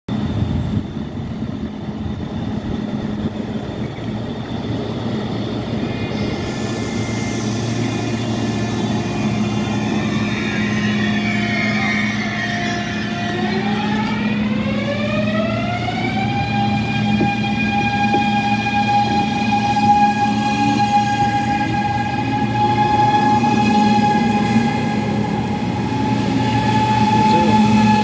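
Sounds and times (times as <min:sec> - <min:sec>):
electric train running in: 0:00.1 - 0:28.0
electric drive whining: 0:05.2 - 0:15.3.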